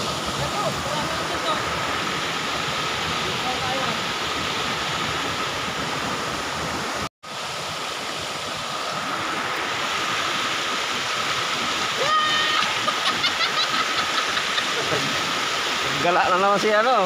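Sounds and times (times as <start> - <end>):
river rushing over rocks: 0.0 - 17.0.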